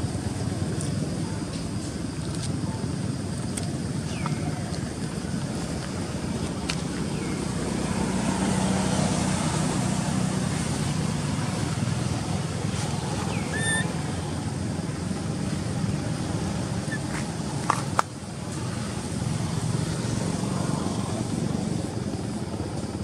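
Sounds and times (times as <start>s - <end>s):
road traffic: 0.0s - 23.0s
vehicle engine hum passing: 3.9s - 23.0s
high falling chirps: 13.3s - 14.0s.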